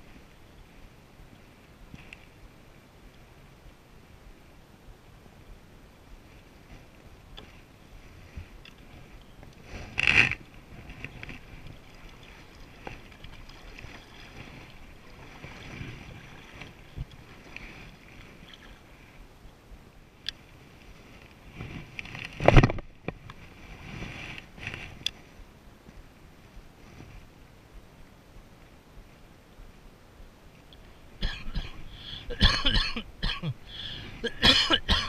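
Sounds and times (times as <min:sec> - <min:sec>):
paddle splashing in water: 0:09.6 - 0:19.0
water lapping on plastic hull: 0:09.9 - 0:18.8.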